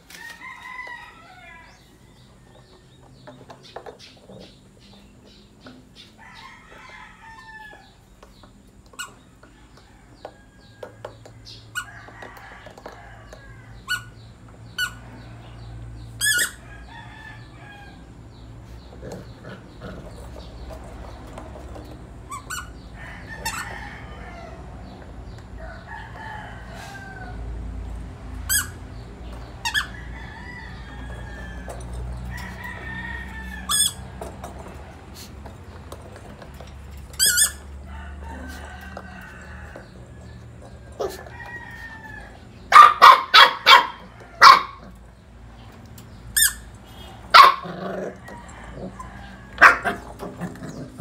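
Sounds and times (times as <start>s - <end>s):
roosters crowing: 0.0s - 51.0s
rubber ball squeaking: 22.3s - 22.8s, 37.1s - 37.6s, 46.3s - 46.7s.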